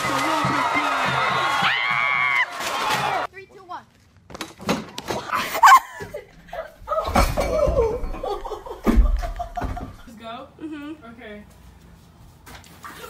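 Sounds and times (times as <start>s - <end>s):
young people laughing and shrieking: 5.3s - 9.6s.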